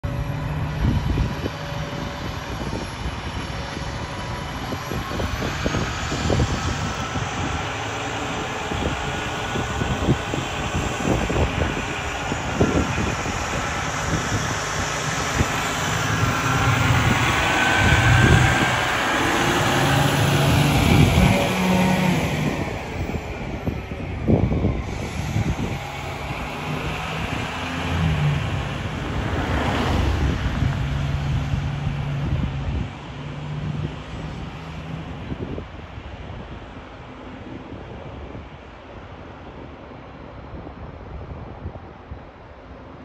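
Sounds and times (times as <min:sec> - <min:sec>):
fire truck diesel engine: 0:00.0 - 0:40.6.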